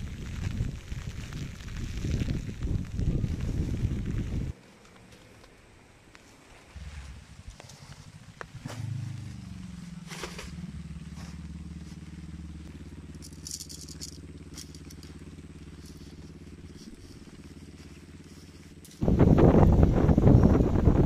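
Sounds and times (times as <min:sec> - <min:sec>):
motorcycle engine idling: 0:07.5 - 0:20.9
light clicks and rattles: 0:13.1 - 0:17.3.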